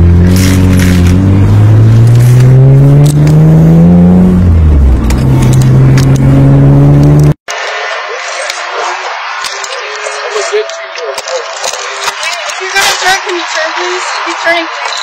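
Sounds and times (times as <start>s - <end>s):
car engine revving: 0.0s - 7.4s.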